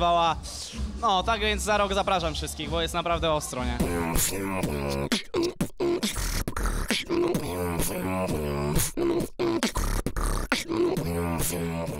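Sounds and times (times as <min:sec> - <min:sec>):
person beatboxing: 0:03.8 - 0:11.9.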